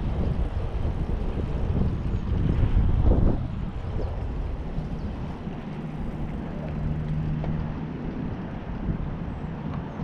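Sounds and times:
bicycle road rumble: 0:00.0 - 0:10.0
wind buffeting microphone: 0:00.0 - 0:10.0.

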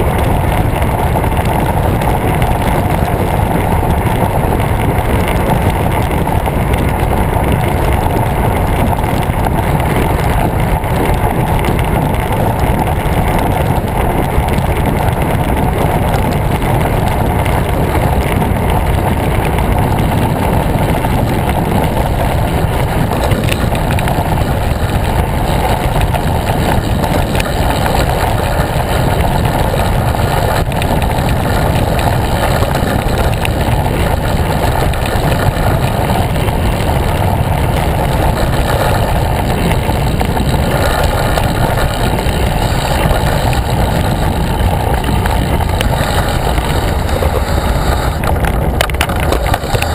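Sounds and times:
wind rushing on microphone: 0:00.0 - 0:49.9.

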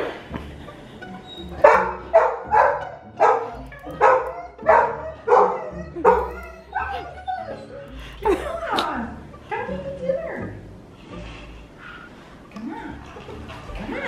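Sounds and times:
puppy barking: 0:01.6 - 0:07.8.

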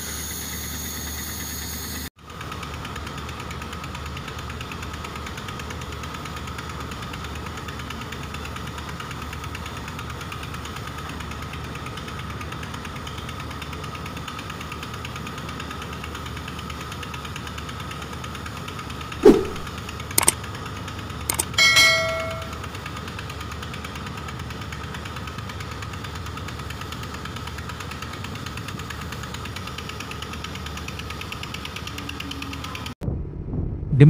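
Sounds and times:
short falling whoosh: 0:19.2 - 0:19.7
sharp clicks: 0:19.2 - 0:20.4, 0:21.3 - 0:22.5.

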